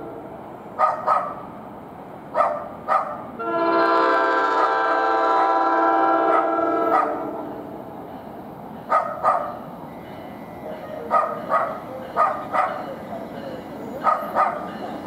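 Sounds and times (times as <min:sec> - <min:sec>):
low train rumble: 0:00.0 - 0:15.0
dog barking: 0:00.8 - 0:01.4, 0:02.3 - 0:03.2, 0:06.3 - 0:07.2, 0:08.9 - 0:09.6, 0:11.0 - 0:12.9, 0:14.0 - 0:14.7
train air horn chord: 0:03.4 - 0:07.6.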